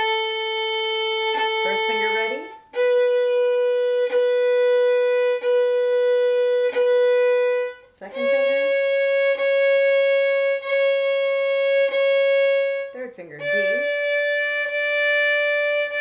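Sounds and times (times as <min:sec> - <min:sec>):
violin bowed notes: 0:00.0 - 0:16.0.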